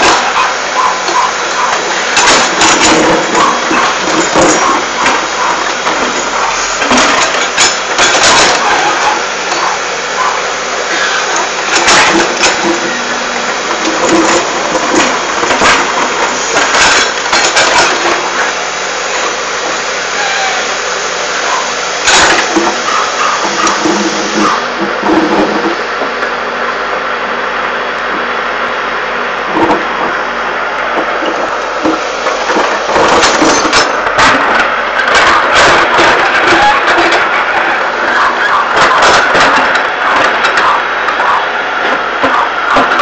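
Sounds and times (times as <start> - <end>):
diesel engine running under load: 0.0 - 43.0
bucket knocking and scraping dirt: 2.2 - 9.7, 11.0 - 18.3.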